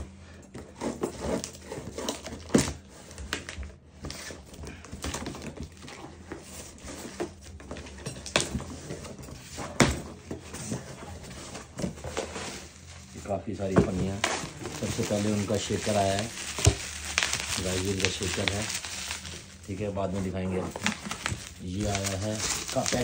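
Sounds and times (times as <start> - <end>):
cardboard box being unpacked: 0.5 - 23.0
plastic bag crinkling: 12.2 - 23.0.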